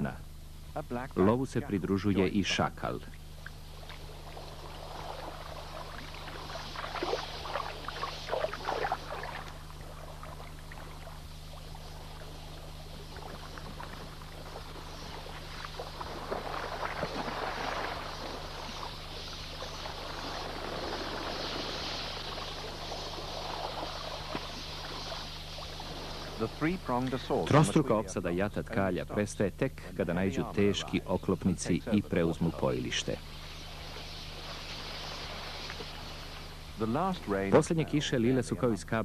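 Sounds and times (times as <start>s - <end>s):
steady low hum: 0.0s - 39.0s
birds splashing and rushing: 3.6s - 27.3s, 32.6s - 37.9s.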